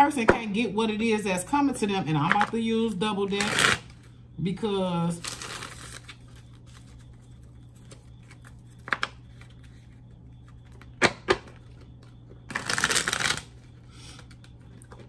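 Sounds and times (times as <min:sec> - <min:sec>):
cards shuffling clicks: 0:12.5 - 0:13.5.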